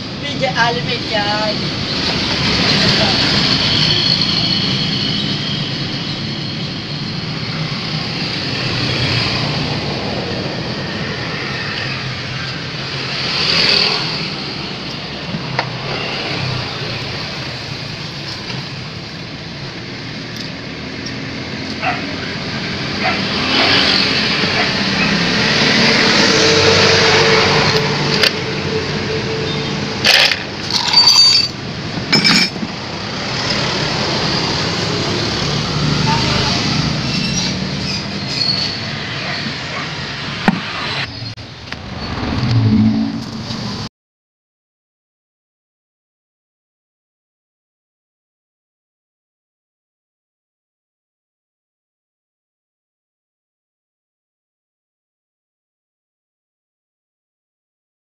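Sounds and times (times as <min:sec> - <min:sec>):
vehicles passing: 0:00.0 - 0:43.9
tools clinking on metal: 0:30.1 - 0:32.6.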